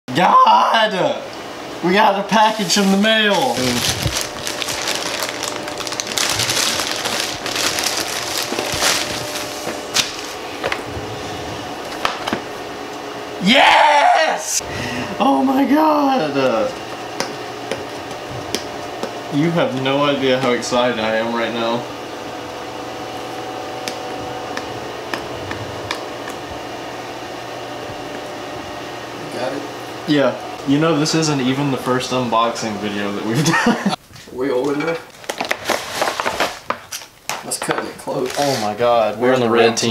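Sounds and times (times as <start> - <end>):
background hum: 0.2 - 39.9
plastic mailer bag crinkling: 2.3 - 10.9, 35.1 - 37.1.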